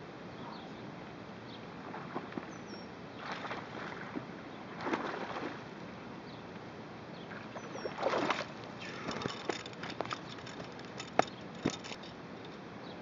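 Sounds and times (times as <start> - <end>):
water splashing: 4.8 - 5.7, 7.4 - 11.8.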